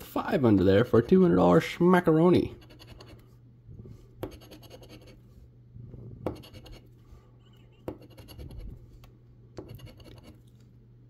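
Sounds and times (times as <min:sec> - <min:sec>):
coin scratching lottery ticket: 0:02.6 - 0:03.2, 0:04.3 - 0:05.2, 0:08.0 - 0:08.7, 0:09.7 - 0:10.4.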